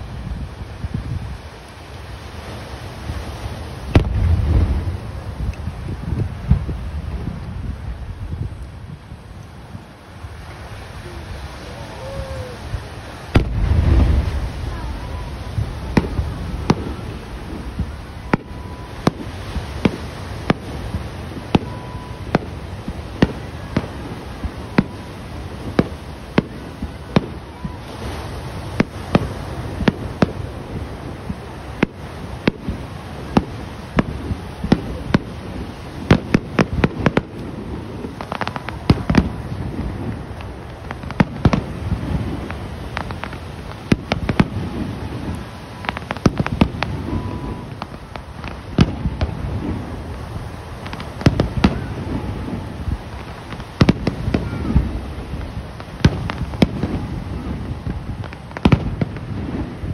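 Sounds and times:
low rumble: 13.3 - 19.1.

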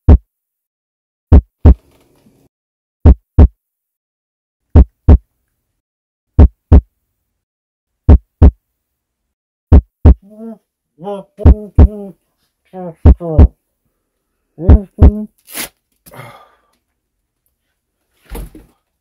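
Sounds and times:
heartbeat double thumps: 0.0 - 0.2, 1.3 - 1.8, 3.0 - 3.6, 4.7 - 5.2, 6.4 - 6.9, 8.1 - 8.6, 9.7 - 10.2, 11.4 - 12.0, 13.0 - 13.5, 14.7 - 15.2.

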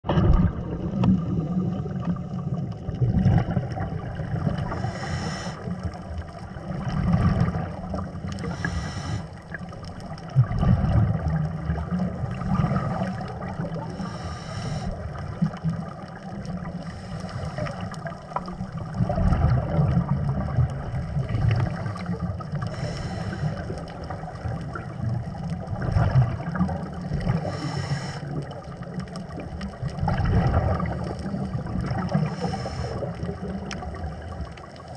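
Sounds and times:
muffled water rumble: 0.0 - 34.9.

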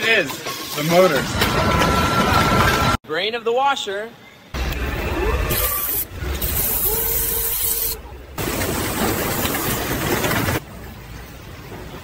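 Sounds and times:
machine spray hissing: 5.5 - 8.0.

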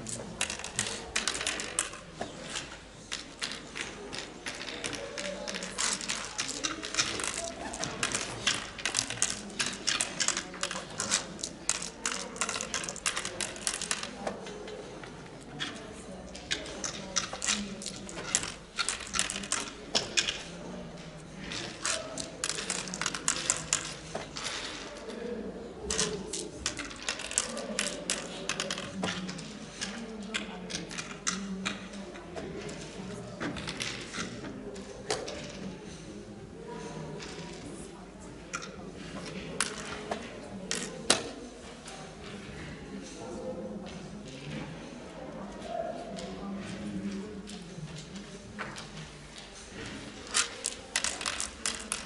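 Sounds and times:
murmur of voices: 0.0 - 52.0
seeds clicking into wooden board: 0.4 - 14.2, 50.2 - 52.0.

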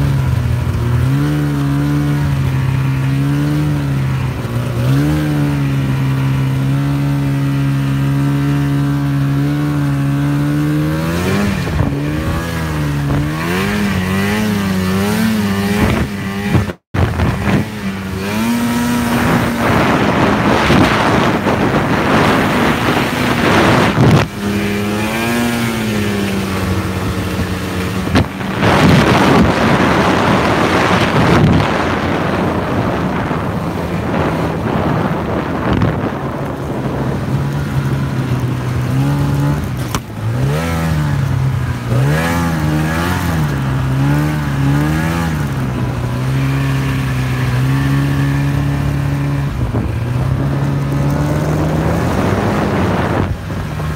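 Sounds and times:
snowmobile engine running: 0.0 - 53.9
loud rushing noise: 11.5 - 37.3.

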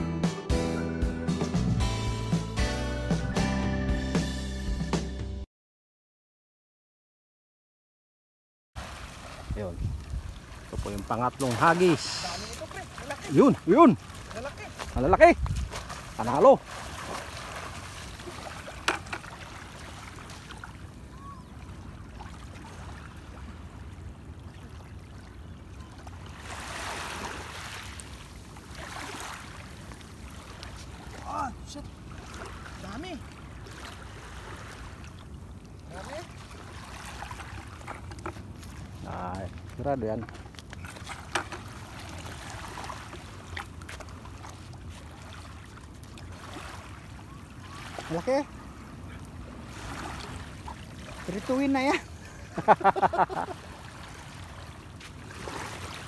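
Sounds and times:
water washes: 8.8 - 23.7, 26.1 - 56.0
water lapping on a beach: 8.8 - 56.0.

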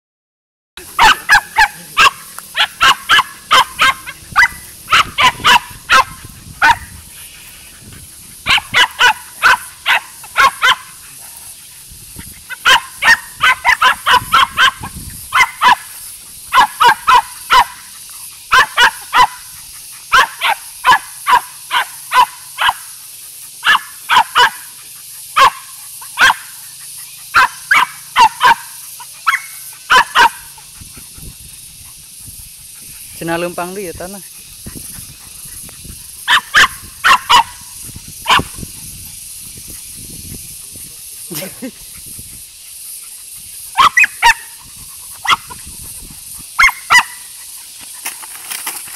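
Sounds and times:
small dog yapping: 0.8 - 6.9, 8.4 - 11.1, 12.4 - 15.9, 16.5 - 17.8, 18.5 - 19.4, 20.1 - 22.8, 23.6 - 24.6, 25.4 - 25.6, 26.2 - 26.5, 27.3 - 30.6, 36.2 - 37.6, 43.7 - 44.6, 45.2 - 45.6, 46.6 - 47.2.

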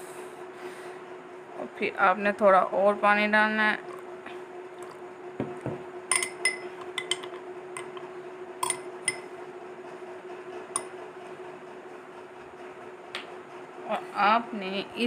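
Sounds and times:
metal spoon clinking against glass: 6.1 - 7.3, 8.6 - 9.2.

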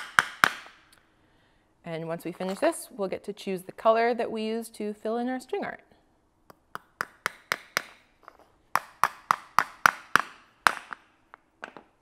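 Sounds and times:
hammer tapping nails into wood: 0.0 - 0.8, 6.5 - 8.0, 8.8 - 11.0.

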